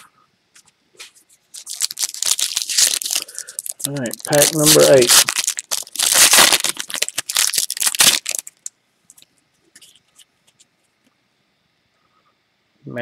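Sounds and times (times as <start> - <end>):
foil wrapper tearing and crinkling: 1.6 - 8.7
cards ticking as handled: 1.6 - 9.9.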